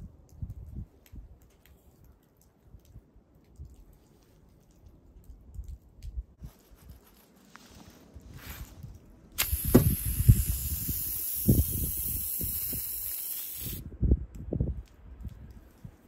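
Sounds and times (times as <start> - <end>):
high hiss: 9.4 - 13.8
dull thumps: 9.6 - 10.0.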